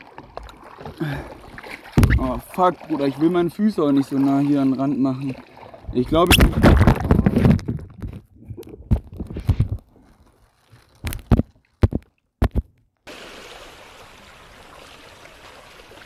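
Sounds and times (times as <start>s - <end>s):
small waves lapping on rocks: 0.0s - 7.3s
knocks on microphone: 11.1s - 12.7s.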